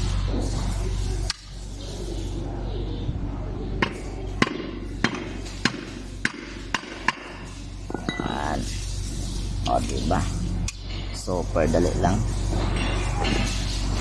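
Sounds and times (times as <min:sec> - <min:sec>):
hammer striking metal punch: 0:03.8 - 0:07.4.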